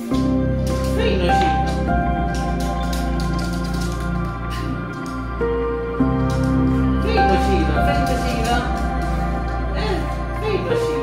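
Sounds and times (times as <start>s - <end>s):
soft background music: 0.0s - 11.0s.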